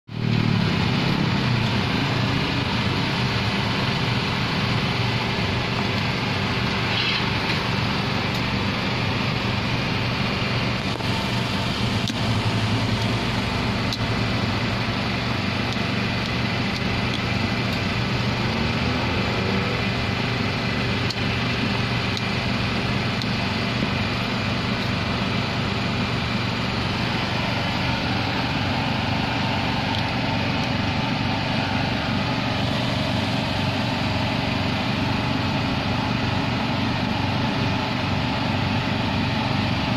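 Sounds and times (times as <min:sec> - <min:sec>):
loud mechanical drone: 0:00.0 - 0:39.9.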